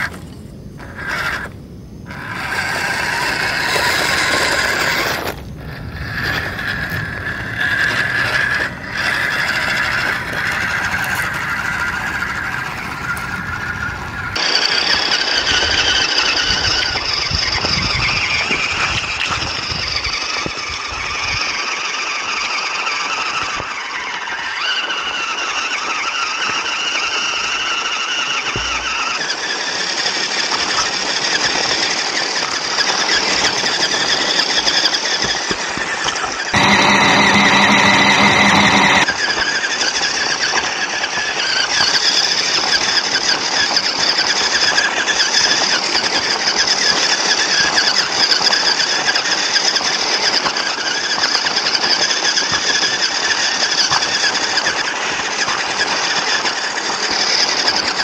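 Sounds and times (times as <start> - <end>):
tyres on gravel: 0.0 - 20.8, 21.6 - 58.0
electric motor whining: 0.0 - 31.3, 32.6 - 40.5.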